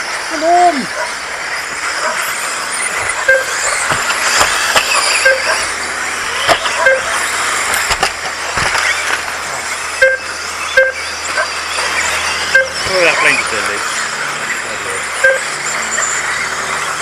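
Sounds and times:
rc car motors whining: 0.0s - 17.0s
tyres hissing on track: 0.0s - 17.0s
sharp clicks and knocks: 3.0s - 5.6s, 6.4s - 9.4s
short electronic beeps: 3.2s - 7.2s, 9.9s - 13.5s, 15.2s - 15.7s.

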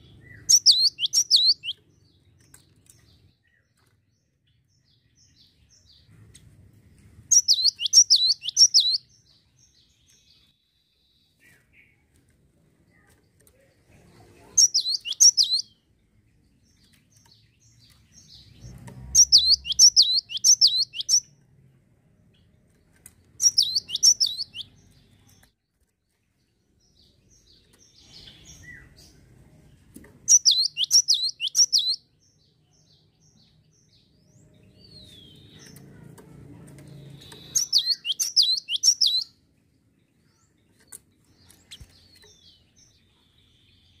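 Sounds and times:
bird singing high falling notes: 37.3s - 39.3s.

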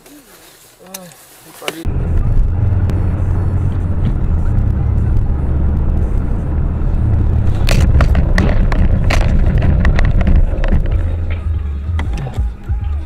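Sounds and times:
car road and engine rumble: 0.0s - 13.0s
sharp bangs and knocks: 7.0s - 12.1s.

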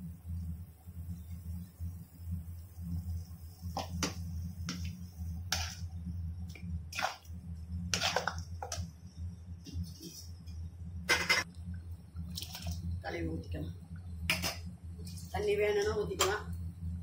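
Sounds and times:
steady low hum: 0.0s - 17.0s
ladle stirring and scraping: 6.5s - 8.9s.

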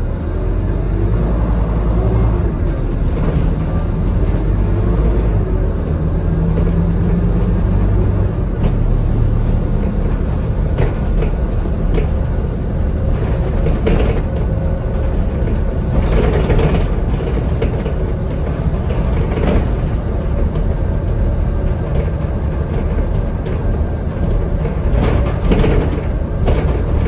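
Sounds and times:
bus diesel engine drone: 0.0s - 27.0s
road noise: 0.0s - 27.0s
body and fittings rattling: 6.2s - 27.0s.

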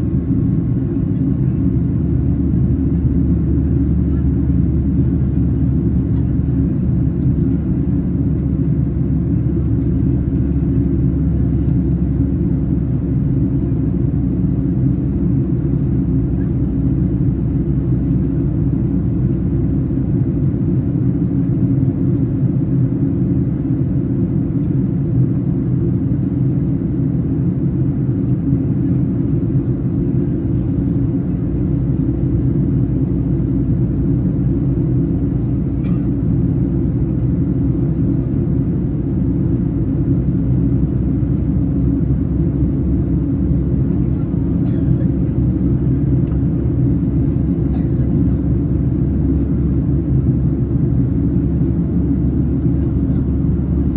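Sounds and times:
airplane cabin low rumble: 0.0s - 53.9s.

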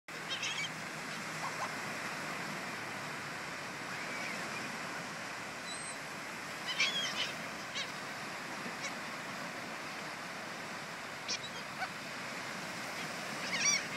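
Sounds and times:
surf washing: 0.1s - 13.9s
gulls squawking: 0.2s - 1.8s, 6.6s - 8.0s, 13.0s - 13.9s.

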